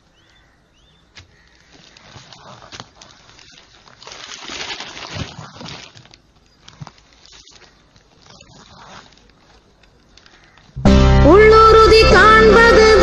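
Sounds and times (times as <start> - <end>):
newspaper pages rustling: 1.2 - 10.8.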